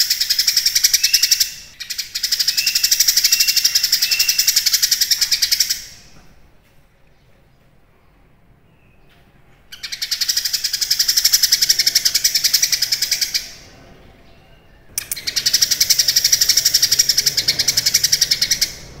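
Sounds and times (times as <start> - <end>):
bird singing fast trill: 0.0 - 6.0, 9.7 - 13.7, 14.3 - 19.0.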